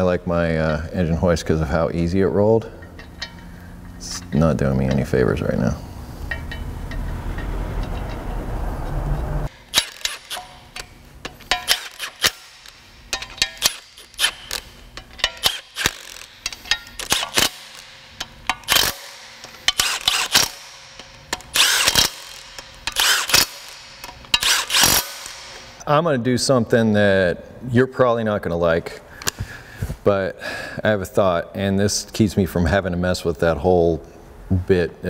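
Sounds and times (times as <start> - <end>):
cordless power tool bursts: 9.5 - 10.6, 11.5 - 12.8, 15.4 - 16.4, 18.6 - 25.8
tool and socket clicks: 9.7 - 25.8.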